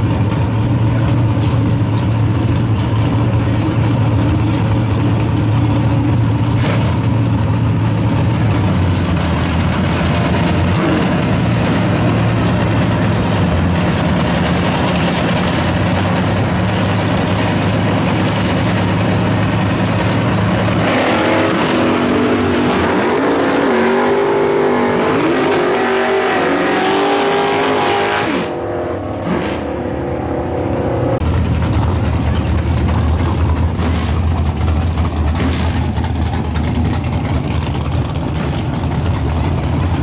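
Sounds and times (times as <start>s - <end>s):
engine idling: 0.0s - 23.0s, 30.7s - 40.0s
engine revving hard: 20.7s - 28.6s.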